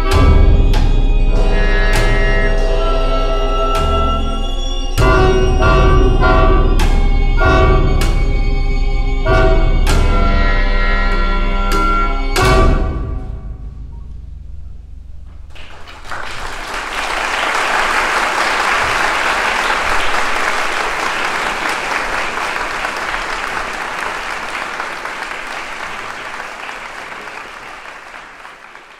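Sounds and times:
low drum resonance: 12.4 - 16.0
audience applauding: 15.5 - 28.9.

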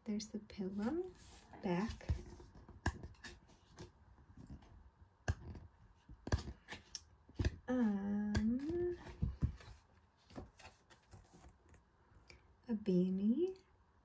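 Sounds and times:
woman humming: 7.7 - 9.1.

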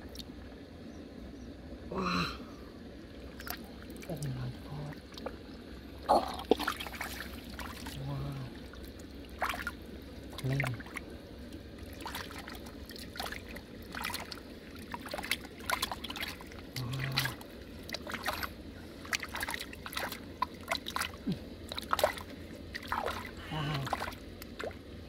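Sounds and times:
trickling water: 0.0 - 0.9, 1.7 - 25.0
small splashes in water: 6.2 - 24.8.

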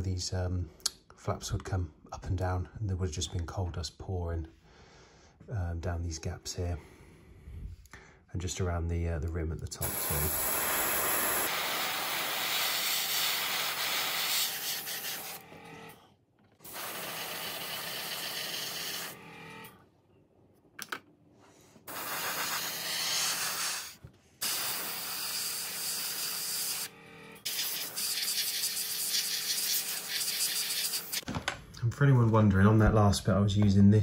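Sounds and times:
airbrush spraying hiss: 9.8 - 15.4, 16.7 - 19.2, 21.9 - 26.9, 27.5 - 31.2.

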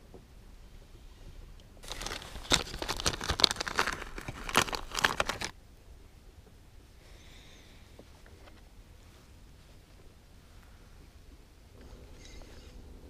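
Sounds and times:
crinkling handling noise: 1.8 - 5.6.

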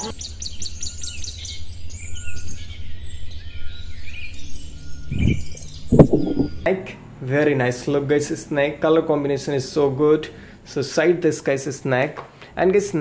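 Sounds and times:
birds chirping: 0.0 - 6.9
steady low rumble: 1.6 - 6.8
low thud: 5.1 - 6.7.

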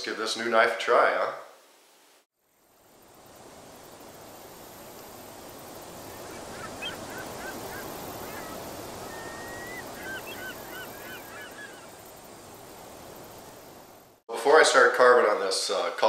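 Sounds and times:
steady hiss: 0.0 - 16.0
bird whistled note: 6.2 - 11.8.

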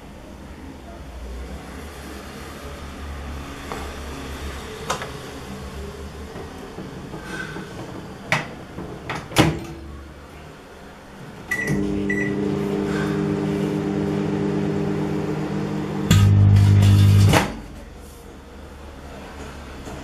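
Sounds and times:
keypad beeps: 11.5 - 12.3
microwave oven humming: 11.5 - 17.8
loud low buzz: 11.7 - 17.6.

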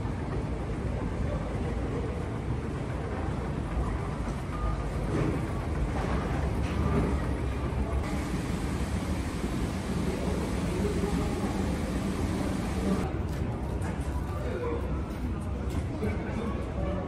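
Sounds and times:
hum of concourse: 0.0 - 17.0
moving walkway rumble: 2.1 - 13.1.

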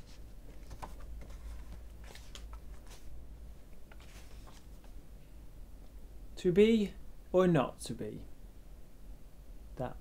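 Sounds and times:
book pages rustling: 0.0 - 3.2, 3.9 - 5.0.

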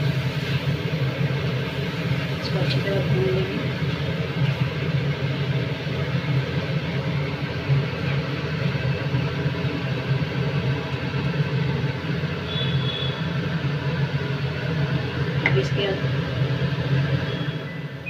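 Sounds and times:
kitchen hum with hiss: 0.0 - 18.0.

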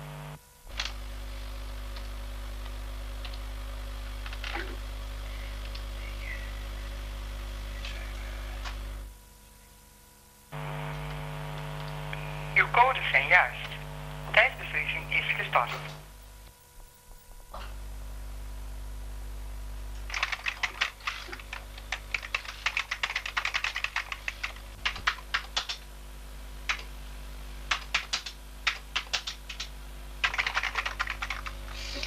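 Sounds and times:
steady low hum: 0.0 - 32.0
fast typing on keyboard: 20.1 - 25.9, 26.7 - 26.9, 27.7 - 32.0.

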